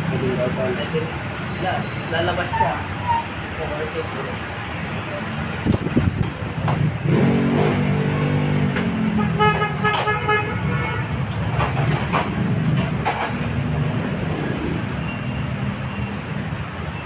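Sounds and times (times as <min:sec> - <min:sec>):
traffic rumble: 0:00.0 - 0:17.0
workshop noise: 0:00.0 - 0:17.0
vehicle horn: 0:09.2 - 0:11.2.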